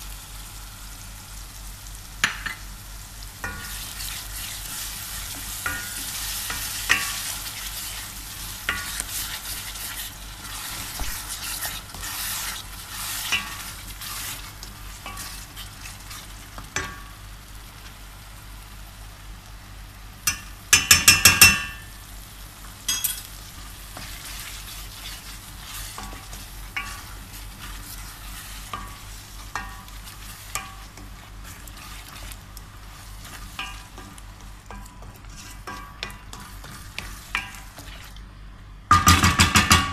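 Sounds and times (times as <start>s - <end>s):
onion sizzling in oil: 0.0s - 39.8s
wooden spoon scraping and stirring: 3.4s - 16.9s, 23.5s - 38.3s
metal spoon knocking on pot: 20.3s - 21.8s, 38.9s - 39.9s.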